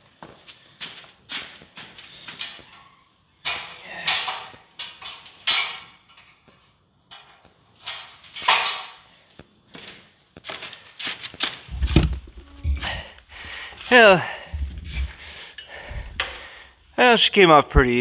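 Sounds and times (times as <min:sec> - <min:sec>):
metal pipes clanking: 0:02.3 - 0:09.1, 0:11.7 - 0:17.0
cloth rustling: 0:11.6 - 0:16.6.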